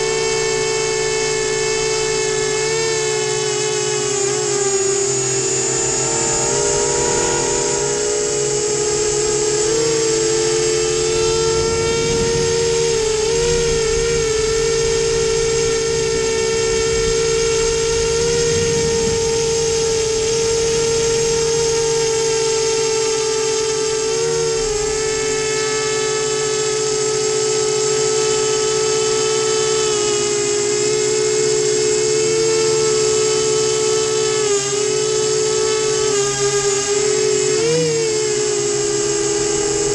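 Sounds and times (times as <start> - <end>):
quadcopter motors whining: 0.0 - 39.9
low rushing noise: 10.5 - 21.8.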